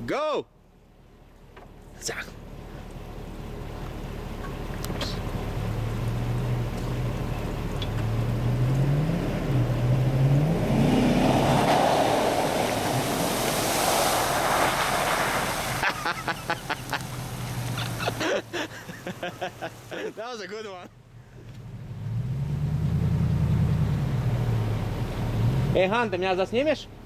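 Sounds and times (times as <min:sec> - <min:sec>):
vehicle engine revving: 0:02.4 - 0:19.9, 0:21.5 - 0:26.1
water and mud spraying: 0:04.5 - 0:20.4.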